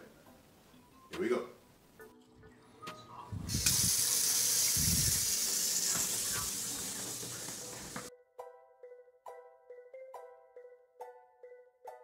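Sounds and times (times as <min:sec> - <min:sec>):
kitchen faucet water running: 0:03.5 - 0:08.1.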